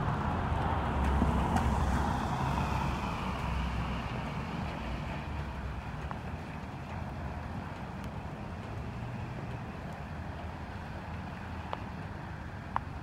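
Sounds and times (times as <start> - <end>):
car passing on wet road: 0.0 - 13.0.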